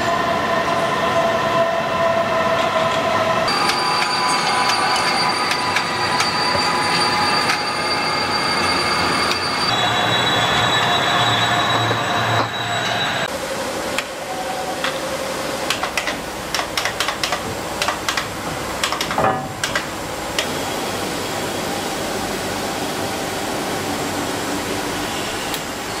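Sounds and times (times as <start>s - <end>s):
sharp clicks and knocks: 15.7s - 20.5s.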